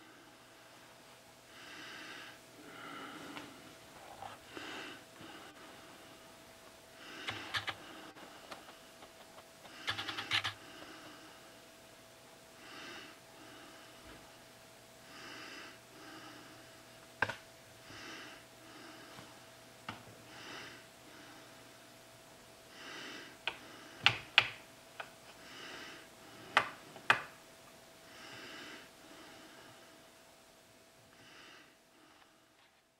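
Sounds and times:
slow breathing: 0.0s - 6.3s, 6.9s - 11.6s, 12.6s - 14.4s, 15.0s - 17.0s, 17.8s - 19.5s, 20.2s - 21.8s, 22.7s - 24.0s, 25.3s - 26.9s, 28.0s - 30.2s, 31.1s - 32.8s
faint steady hum: 0.0s - 32.9s.

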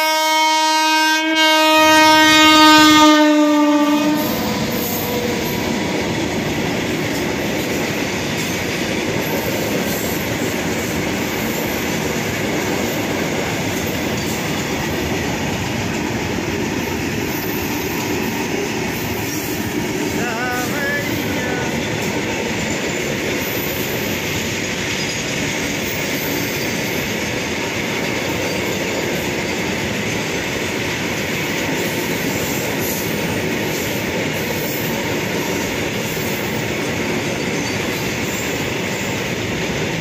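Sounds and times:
train wheels on rails: 1.6s - 40.0s.

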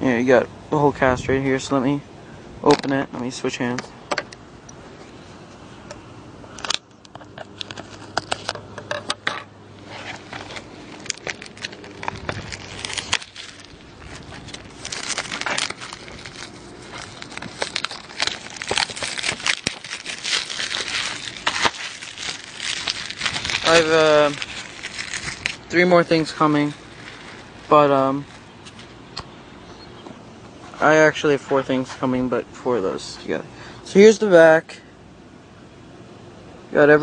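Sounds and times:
plastic wrapping crinkling: 9.8s - 29.0s.

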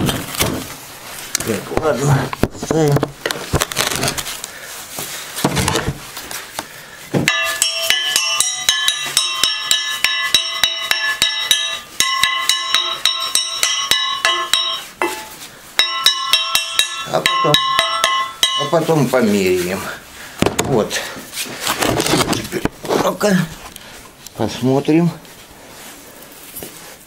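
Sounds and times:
hammer ringing on metal: 7.3s - 19.1s.

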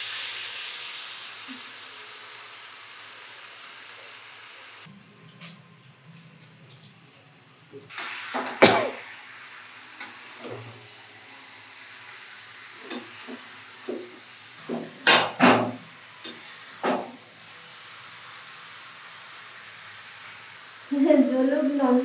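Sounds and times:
onions sizzling in oil: 0.0s - 4.9s, 7.9s - 22.0s.

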